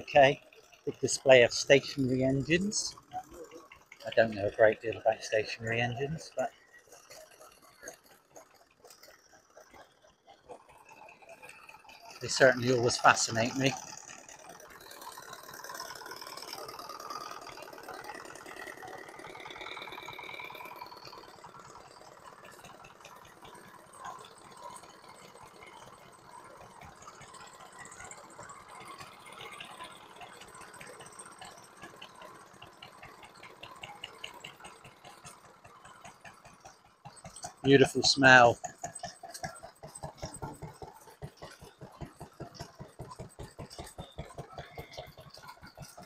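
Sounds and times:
small engines idling: 0:00.0 - 0:46.0.

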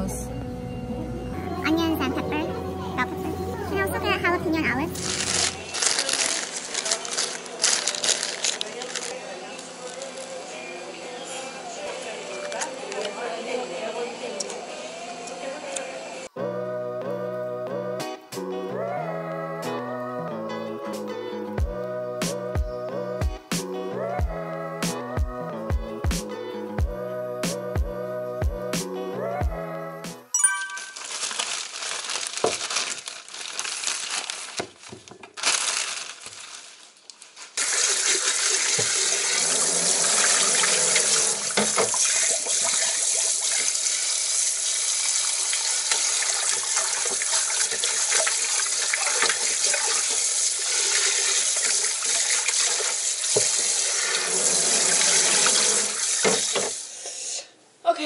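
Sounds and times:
faucet running into metal sink: 0:37.6 - 0:56.8.

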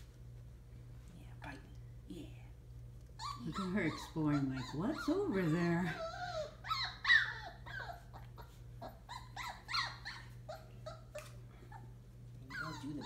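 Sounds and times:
puppies whining and squeaking: 0:03.1 - 0:13.0.

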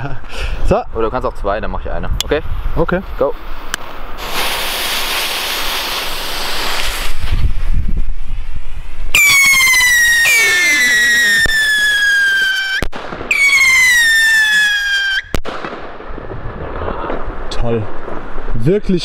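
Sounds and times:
firework rocket cracks: 0:03.7 - 0:07.8, 0:09.1 - 0:18.4
firework rockets whistling: 0:03.9 - 0:07.7, 0:09.1 - 0:17.2.

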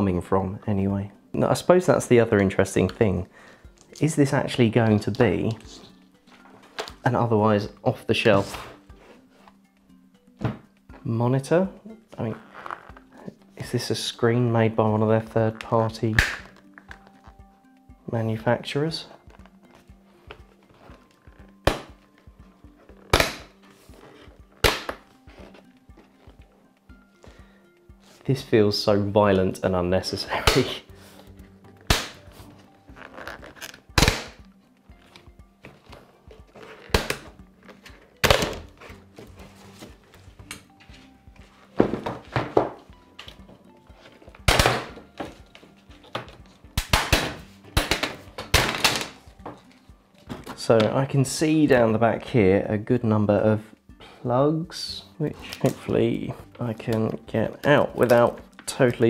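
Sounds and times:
plastic clips snapping: 0:15.6 - 0:17.1.

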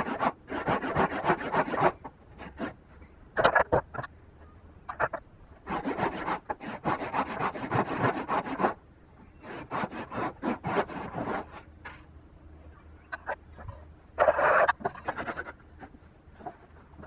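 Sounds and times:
hand saw cutting wood: 0:00.0 - 0:02.8, 0:05.7 - 0:08.8, 0:09.4 - 0:11.6.

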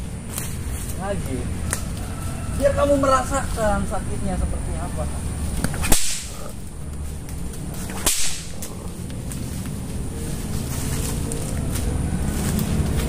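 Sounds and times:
whip swishing and cracking: 0:05.6 - 0:06.5, 0:07.1 - 0:09.4.

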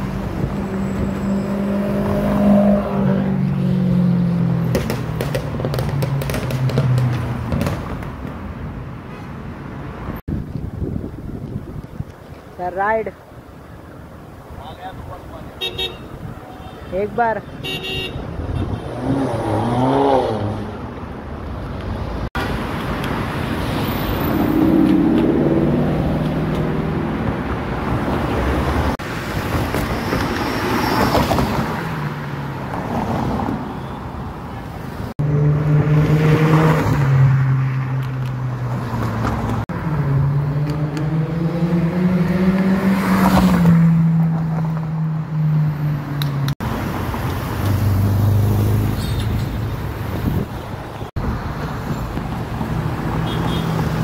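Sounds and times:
car engine passing: 0:00.0 - 0:08.2, 0:18.8 - 0:21.0, 0:34.9 - 0:50.4
traffic noise: 0:00.0 - 0:54.0.

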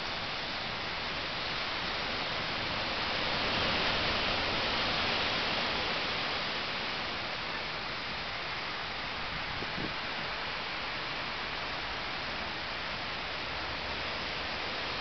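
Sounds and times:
surf breaking on a sand beach: 0:00.0 - 0:07.4.

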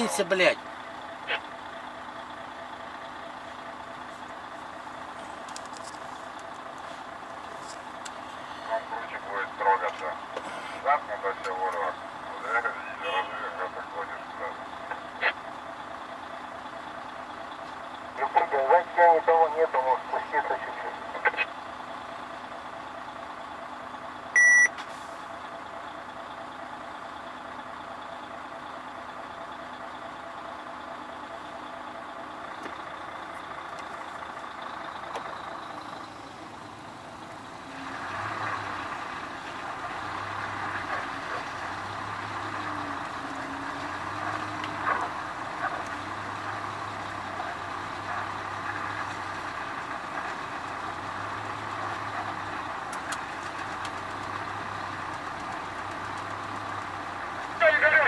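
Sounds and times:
truck diesel engine running: 0:00.0 - 0:58.0
loud electronic beep: 0:24.4 - 0:24.8.

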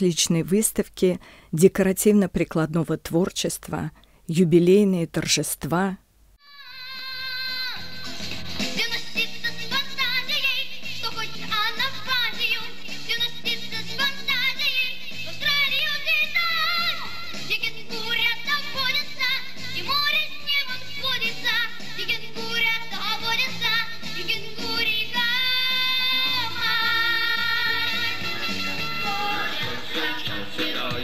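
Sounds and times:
group singing pop song: 0:21.5 - 0:31.0
instrumental accompaniment with beat: 0:27.9 - 0:31.0.

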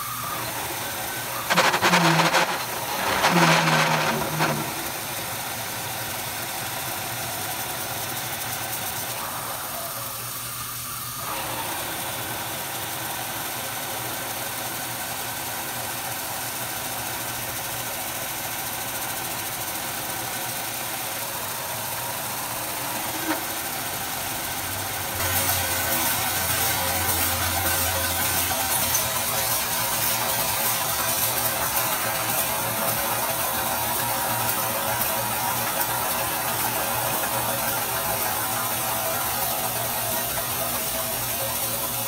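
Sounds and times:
milling machine cutting hum: 0:00.0 - 0:05.3, 0:21.3 - 0:42.0.

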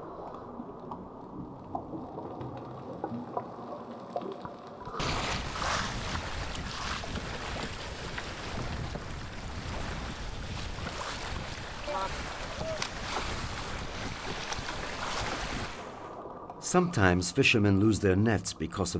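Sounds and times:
muffled underwater wash: 0:00.0 - 0:16.6
sea splashing against boat: 0:04.9 - 0:16.4
wind on microphone: 0:05.0 - 0:15.8
wet net hauled aboard: 0:05.0 - 0:15.9.

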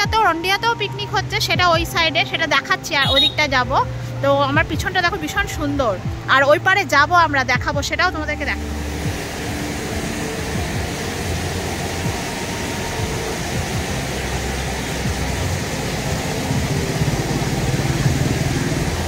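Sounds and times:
low rumble: 0:03.6 - 0:19.0
river water rushing through dam: 0:04.1 - 0:19.0.

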